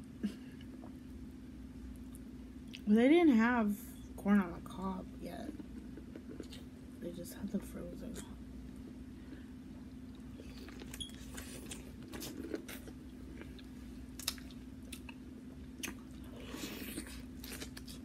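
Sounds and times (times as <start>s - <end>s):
low steady hum: 0.0s - 18.0s
chewing corn on the cob: 10.1s - 18.0s.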